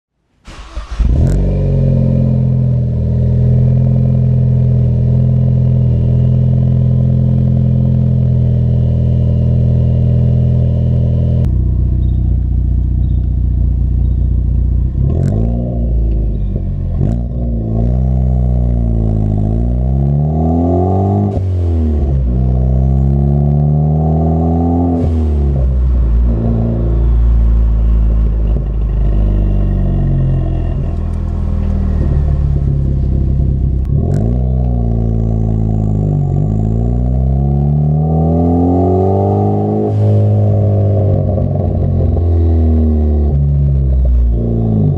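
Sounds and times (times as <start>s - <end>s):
car exhaust idling: 11.2s - 15.1s, 25.2s - 37.3s
car accelerating through gears: 17.0s - 44.9s.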